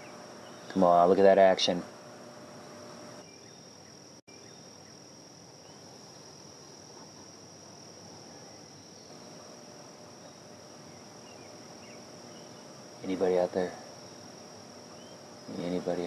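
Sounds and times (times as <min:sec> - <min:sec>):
insects shrilling: 0:08.2 - 0:16.0.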